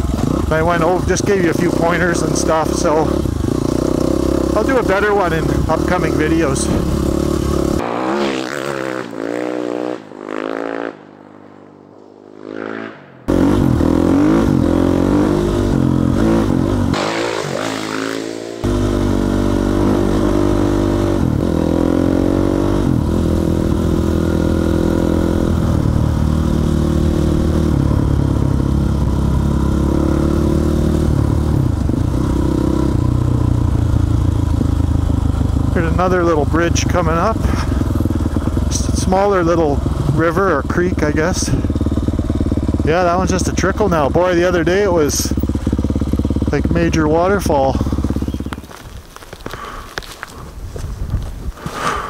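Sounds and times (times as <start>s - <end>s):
motorcycle engine revving: 0.0s - 50.4s, 51.1s - 52.0s.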